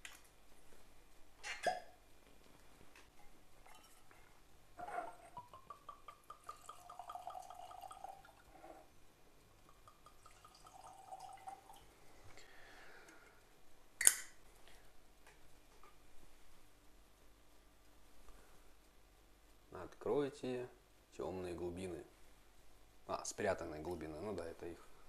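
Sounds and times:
liquid glugging into glasses: 0:04.8 - 0:08.6, 0:09.8 - 0:11.8.

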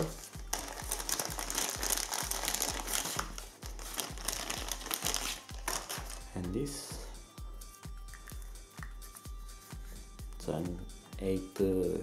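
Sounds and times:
background music with low beat: 0:00.0 - 0:12.0
plastic bag crinkling: 0:00.5 - 0:06.3.

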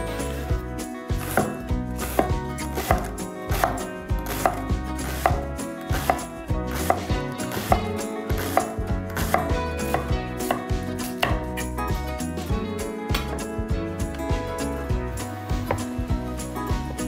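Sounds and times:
knife chopping on cutting board: 0:01.2 - 0:11.5, 0:15.6 - 0:15.9.

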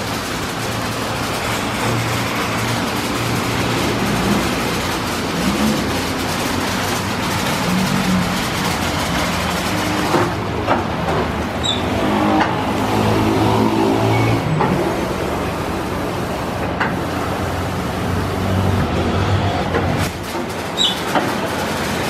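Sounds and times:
steady mechanical hum: 0:00.0 - 0:22.0
spraying and running water: 0:14.7 - 0:18.9.

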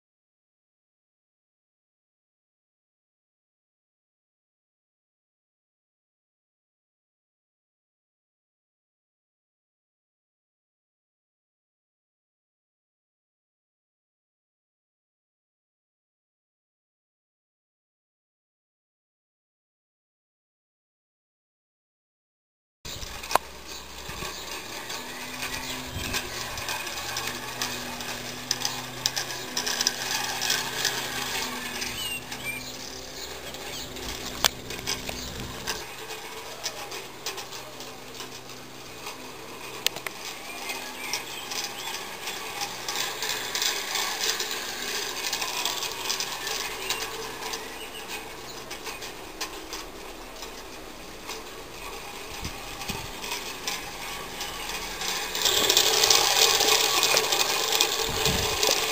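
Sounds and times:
steam locomotive clicking and rattling: 0:22.9 - 0:58.9.

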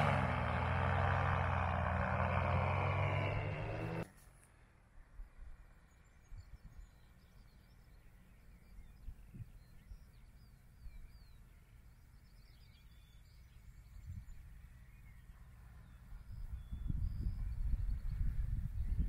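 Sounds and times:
bird chirps: 0:05.6 - 0:19.0
faint wind rumble on microphone: 0:13.0 - 0:19.0.

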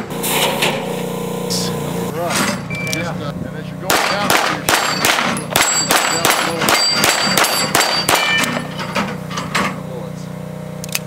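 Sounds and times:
rapid pistol shots: 0:03.9 - 0:08.3
bullets dinging steel targets: 0:03.9 - 0:09.8.

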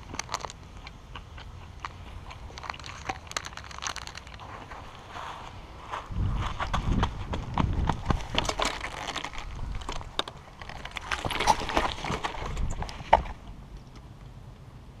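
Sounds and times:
footsteps on gravel: 0:00.0 - 0:13.4
tire swing chain clinks and squeaks: 0:02.4 - 0:04.8, 0:08.0 - 0:13.4.

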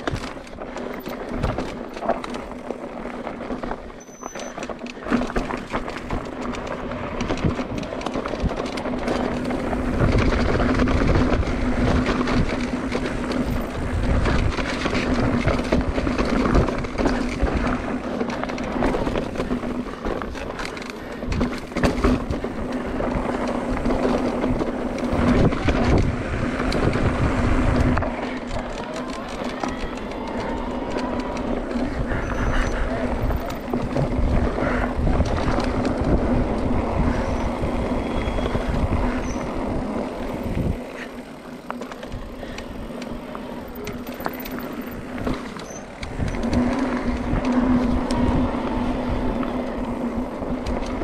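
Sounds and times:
bike rattling and knocking: 0:00.0 - 0:51.0
bike tyres crunching on gravel: 0:00.0 - 0:51.0
wind buffeting microphone: 0:05.0 - 0:51.0.

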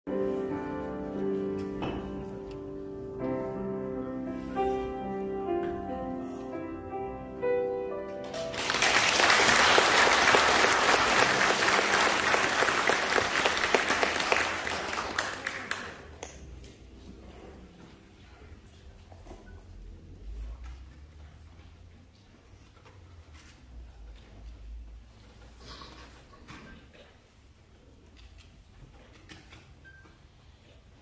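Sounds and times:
keyboard chords: 0:00.1 - 0:08.7
audience applause: 0:08.2 - 0:16.4.

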